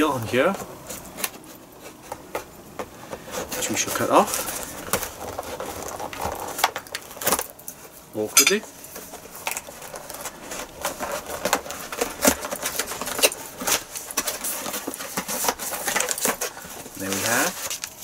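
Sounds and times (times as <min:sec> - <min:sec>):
box handling scratches and clicks: 0:00.5 - 0:07.5, 0:09.0 - 0:18.0
knife scraping cardboard box seal: 0:03.2 - 0:07.4, 0:09.4 - 0:18.0.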